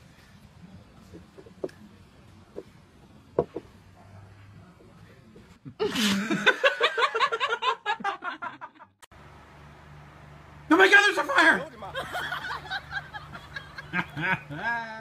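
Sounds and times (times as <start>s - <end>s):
glass knocking on wooden table: 3.4s - 3.7s
person laughing: 5.7s - 8.5s, 11.9s - 14.8s.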